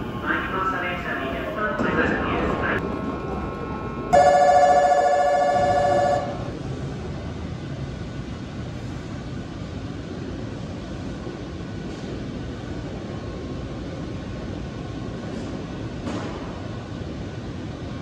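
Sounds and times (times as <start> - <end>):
station background hum: 0.0 - 18.0
electric bell ringing rapidly: 4.2 - 6.4.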